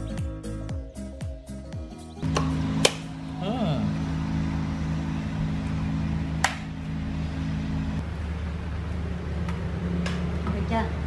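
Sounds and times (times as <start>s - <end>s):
steady low hum: 2.2s - 11.0s.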